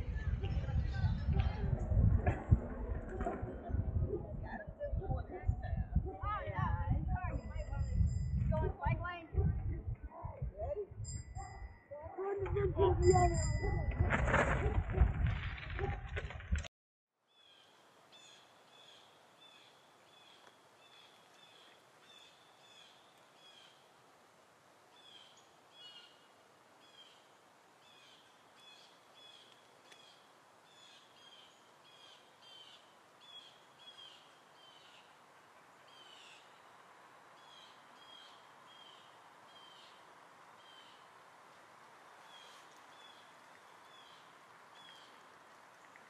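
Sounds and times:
quiet hiss: 17.3 - 46.0.

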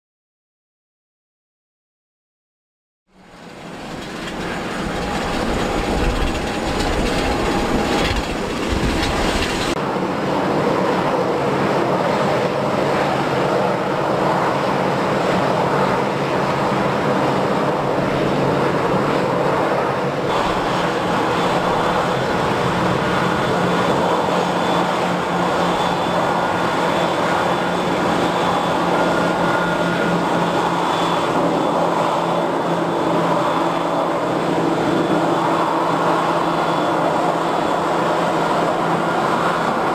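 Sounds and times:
jet engines whining: 3.2 - 39.9.

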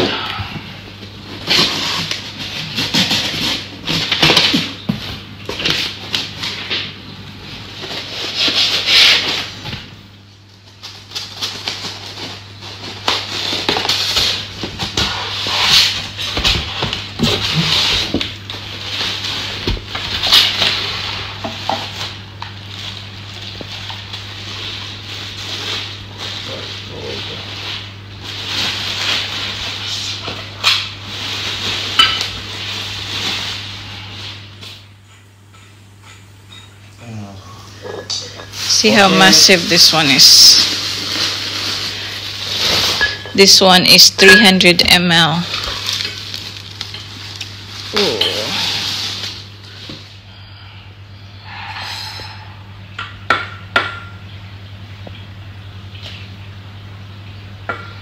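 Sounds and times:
plastic wrap crinkling: 10.4 - 34.9, 38.5 - 43.4, 45.4 - 50.1.

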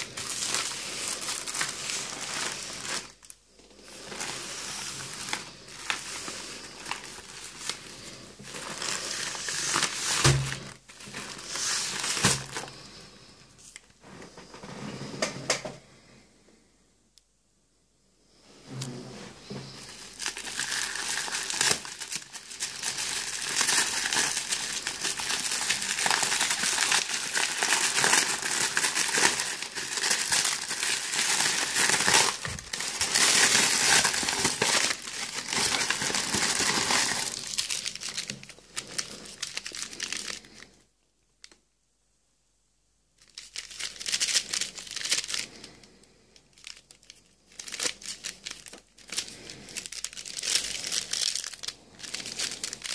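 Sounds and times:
paper tearing and crinkling: 0.0 - 3.3, 3.9 - 12.7, 19.7 - 40.6.

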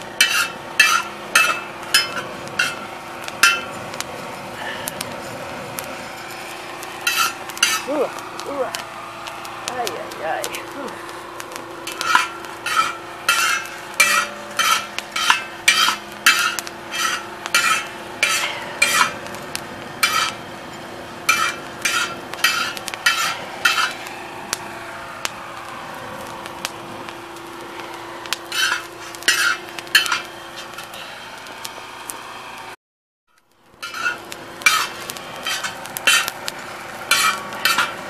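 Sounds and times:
low hum: 0.0 - 32.8
metal spoon scraping coffee beans: 0.2 - 2.8, 7.0 - 7.9, 11.9 - 19.1, 20.0 - 20.4, 28.5 - 30.9, 33.8 - 36.3, 37.1 - 38.0.

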